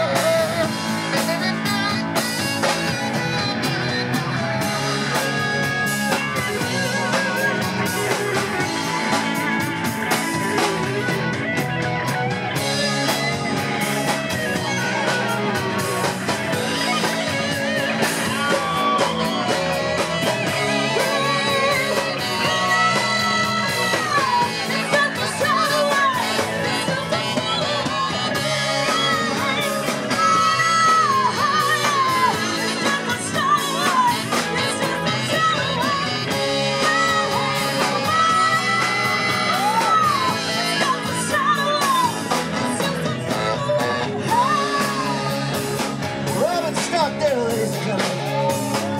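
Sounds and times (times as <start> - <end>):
saxophone: 0.0 - 46.6
drums: 0.0 - 48.9
electric guitar: 0.0 - 48.9
keyboard: 0.0 - 48.9
man singing: 46.3 - 48.9.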